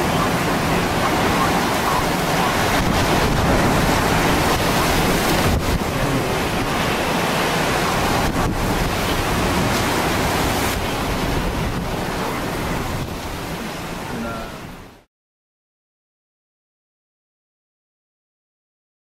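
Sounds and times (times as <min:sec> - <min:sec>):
wind buffeting microphone: 0:00.0 - 0:15.0
driving rain: 0:00.0 - 0:15.1
hurricane wind: 0:00.0 - 0:15.1
rough surf: 0:00.0 - 0:15.1.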